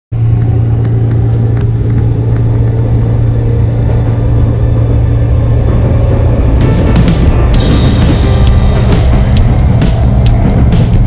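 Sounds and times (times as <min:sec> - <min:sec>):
train car interior hum: 0:00.1 - 0:11.0.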